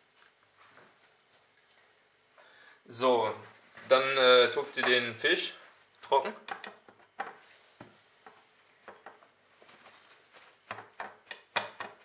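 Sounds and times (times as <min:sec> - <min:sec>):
paper towel rustling: 0:02.9 - 0:05.9, 0:07.4 - 0:10.7.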